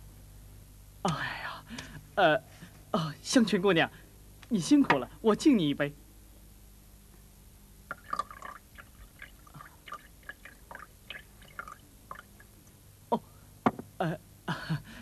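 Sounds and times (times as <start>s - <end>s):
wine pouring into cup: 7.9s - 12.6s.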